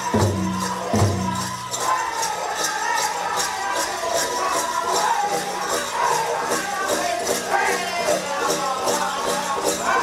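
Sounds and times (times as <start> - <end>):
steady drumbeat: 0.0 - 3.7
group singing in chorus: 0.0 - 10.0.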